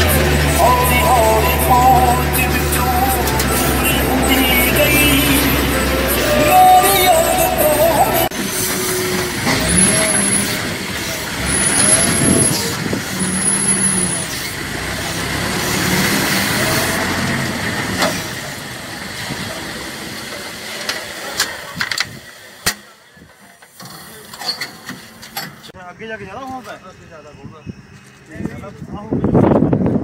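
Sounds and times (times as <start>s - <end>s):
short high-pitched tones: 0.0s - 10.2s
diesel engine running: 0.0s - 21.2s.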